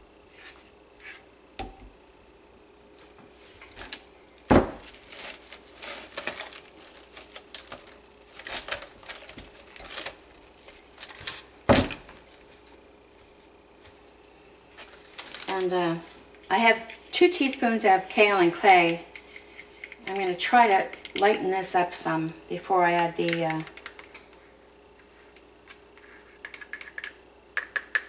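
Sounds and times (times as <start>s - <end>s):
plastic cling wrap crinkling: 3.6s - 20.4s.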